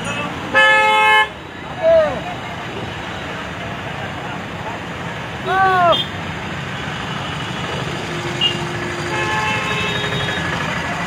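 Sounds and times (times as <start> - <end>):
road traffic: 0.0 - 11.0.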